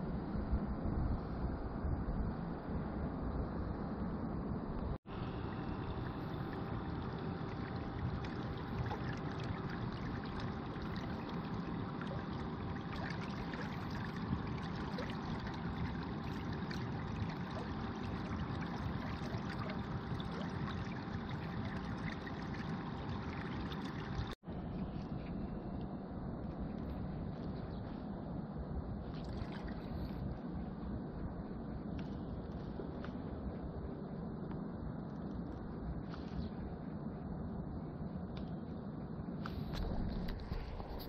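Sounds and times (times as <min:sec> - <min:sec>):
water splashing along boat hull: 0:05.5 - 0:25.4.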